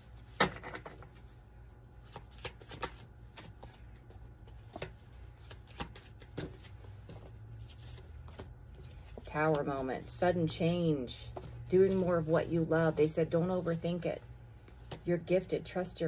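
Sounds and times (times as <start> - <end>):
faint low hum: 0.0 - 16.0
cards being shuffled: 1.9 - 9.9.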